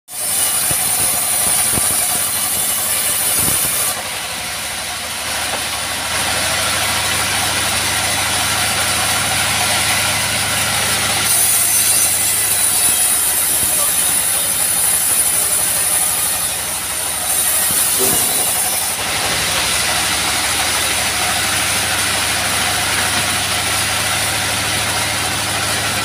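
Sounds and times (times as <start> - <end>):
high saw hiss: 0.1 - 4.0, 11.3 - 19.0
band sawmill running: 0.1 - 26.0.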